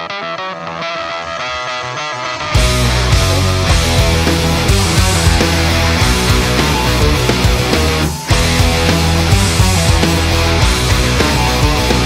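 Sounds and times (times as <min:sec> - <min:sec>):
heavy rock music: 0:00.0 - 0:12.0
steady drum beat: 0:02.5 - 0:12.0.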